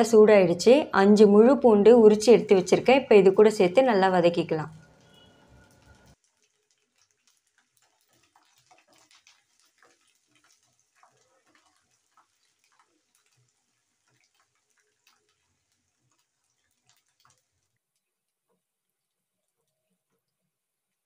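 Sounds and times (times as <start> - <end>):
garlic sizzling in hot oil: 4.8 - 17.7
spatula stirring: 4.8 - 18.0
oil crackling and popping: 4.8 - 20.4.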